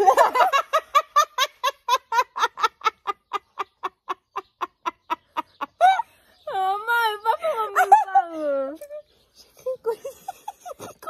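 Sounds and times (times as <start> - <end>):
cackling laughter: 0.0 - 6.1, 9.9 - 11.0.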